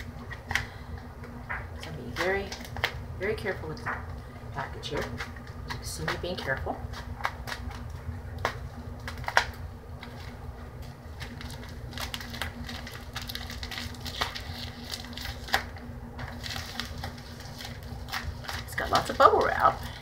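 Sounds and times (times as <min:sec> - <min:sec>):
steady low hum: 0:00.0 - 0:20.0
package crinkling and clicks: 0:04.9 - 0:20.0.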